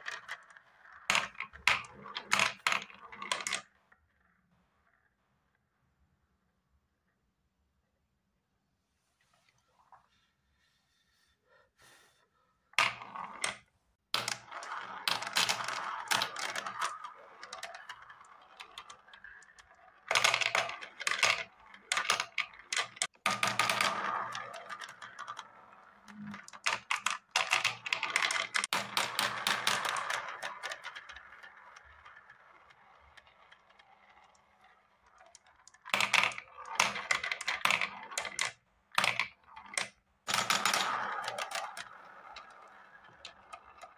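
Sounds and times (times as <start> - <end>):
marbles rattling down plastic track: 0.0 - 3.7, 14.2 - 43.9.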